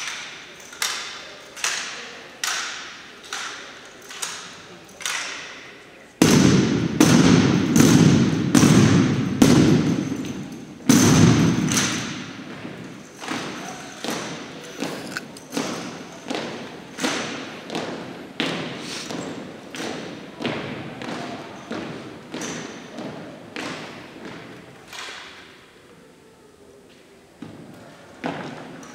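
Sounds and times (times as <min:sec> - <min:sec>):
rifles and boots striking wooden floor: 0:06.2 - 0:13.5.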